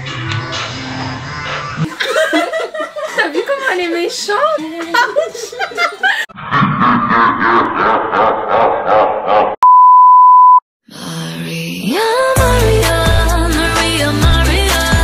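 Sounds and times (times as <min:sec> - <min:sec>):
music with a regular beat: 0:12.4 - 0:15.0.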